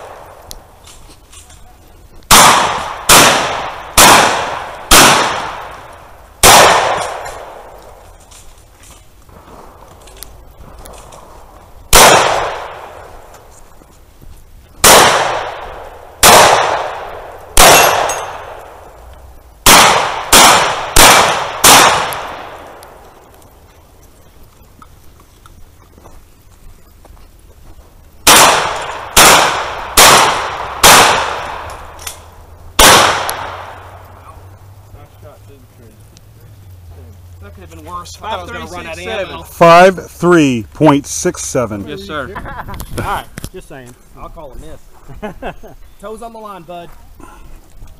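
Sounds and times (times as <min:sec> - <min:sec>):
gunshots with echoing tail: 0:00.0 - 0:00.4, 0:02.3 - 0:07.8, 0:11.9 - 0:13.2, 0:14.8 - 0:18.9, 0:19.6 - 0:23.0, 0:28.2 - 0:32.1, 0:32.8 - 0:34.0.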